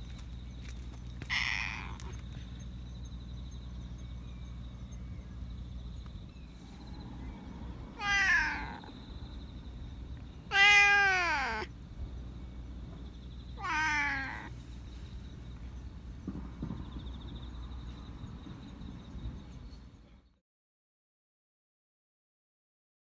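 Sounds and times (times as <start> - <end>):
cat meowing: 1.3 - 2.2, 7.9 - 9.0, 10.5 - 11.7, 13.6 - 14.5.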